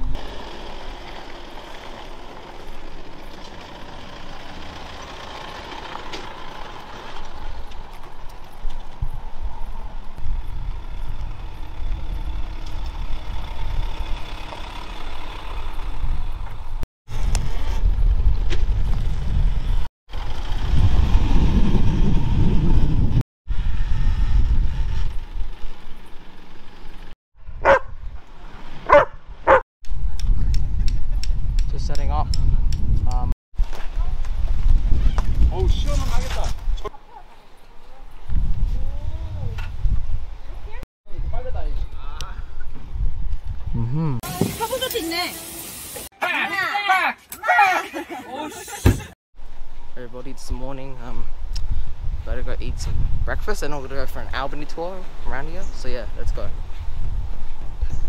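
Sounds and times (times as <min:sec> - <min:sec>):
vehicle road and engine noise: 0:00.0 - 0:45.1, 0:49.4 - 0:58.0
dog bark: 0:27.6 - 0:27.9, 0:28.9 - 0:29.6, 0:36.9 - 0:37.4.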